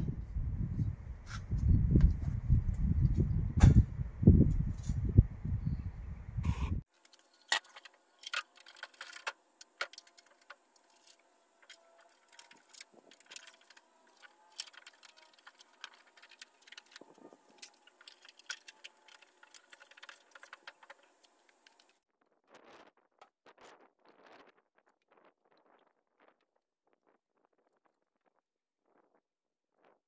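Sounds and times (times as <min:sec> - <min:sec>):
wind on microphone: 0:00.0 - 0:06.8, 0:16.8 - 0:17.6.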